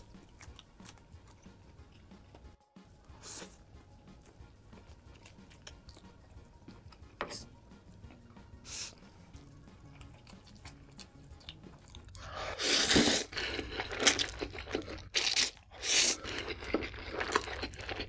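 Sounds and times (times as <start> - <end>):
wet chewing: 0.0 - 2.5, 4.1 - 7.1, 9.3 - 18.0
noodle slurping: 12.2 - 17.6.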